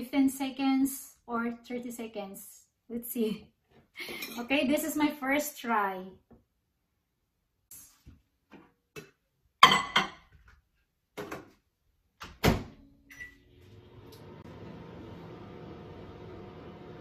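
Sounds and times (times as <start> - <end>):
microwave humming: 12.2 - 17.0.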